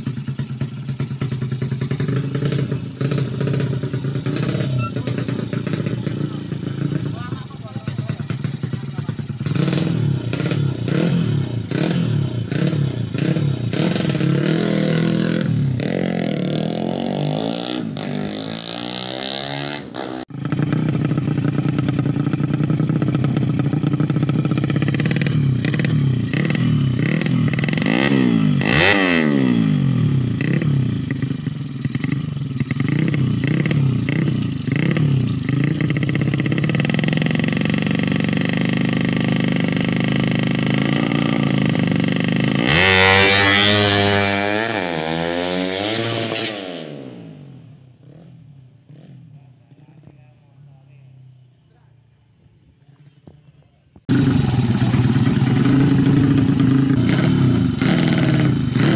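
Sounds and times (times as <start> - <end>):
motorcycle engine revving: 0.0 - 58.9.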